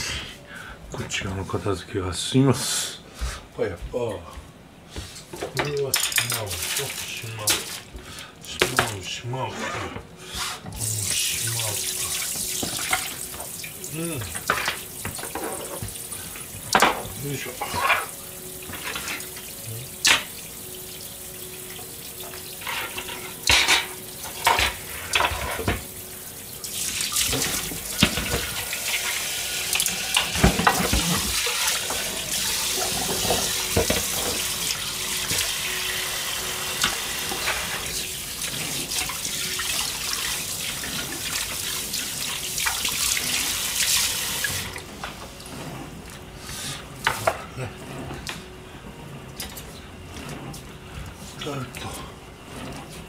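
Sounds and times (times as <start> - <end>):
tap running: 10.6 - 53.0
dishes knocking and clinking: 14.2 - 16.0, 16.7 - 19.2, 22.2 - 25.9, 27.3 - 28.6, 30.1 - 34.5.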